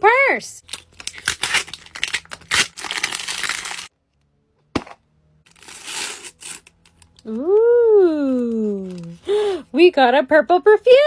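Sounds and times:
foil pouch crinkling: 0:00.6 - 0:03.9
wrapper crinkling and tearing: 0:00.6 - 0:03.9, 0:05.5 - 0:07.4, 0:08.3 - 0:09.3.

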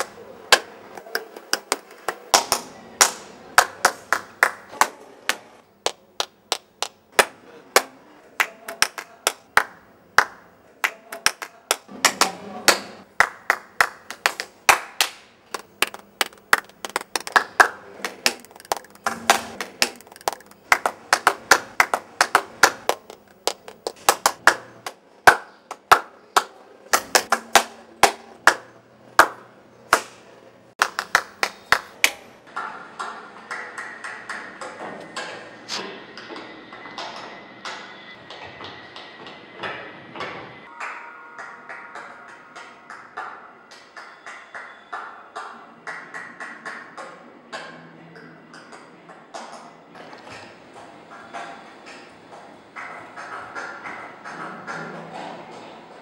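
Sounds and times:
hands clapping: 0:00.0 - 0:30.2, 0:30.8 - 0:32.2, 0:33.5 - 0:34.8, 0:40.7 - 0:47.1.

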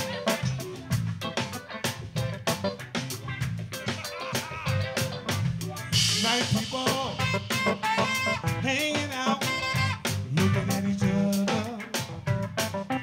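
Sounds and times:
live funk band playing: 0:00.0 - 0:13.0
man singing lead: 0:03.8 - 0:12.4.

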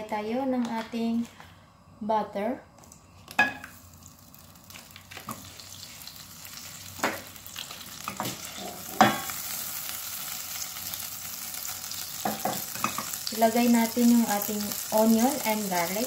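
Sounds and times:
butter sizzling in frying pan: 0:03.6 - 0:16.0.

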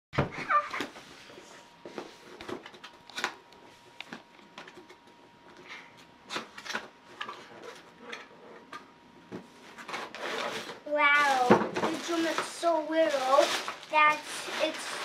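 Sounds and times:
cardboard scraping and rustling: 0:09.4 - 0:15.0.

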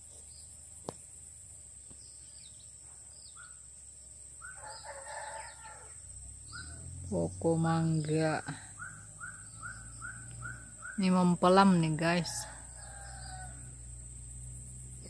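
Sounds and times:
bird chirps: 0:01.9 - 0:03.7, 0:04.4 - 0:05.8, 0:06.4 - 0:11.9
rooster crowing: 0:04.4 - 0:06.8, 0:12.2 - 0:14.1.

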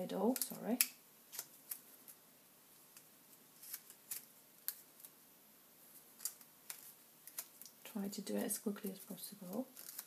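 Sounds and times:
paper crackling: 0:08.4 - 0:10.0.

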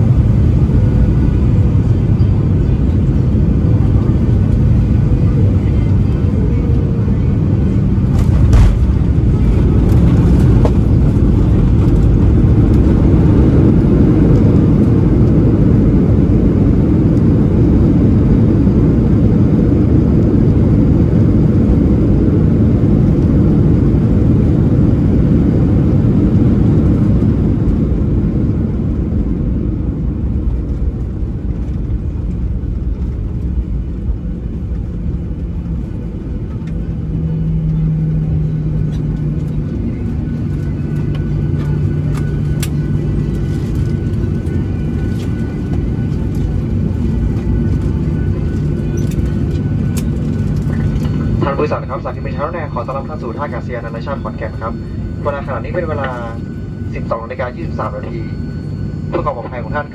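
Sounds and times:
jet engines in reverse thrust: 0:00.0 - 0:59.9
tyres rumbling on runway: 0:03.0 - 0:16.7
airplane touchdown thump: 0:08.0 - 0:13.3.

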